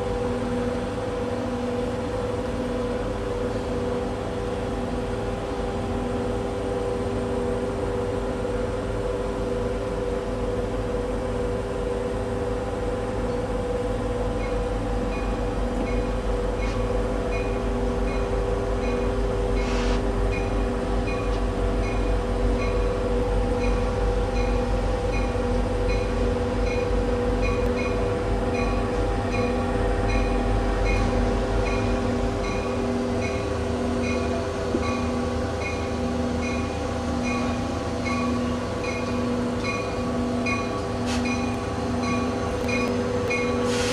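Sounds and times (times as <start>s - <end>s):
diesel train rumbling: 0.0s - 43.9s
train bell ringing: 14.3s - 43.9s.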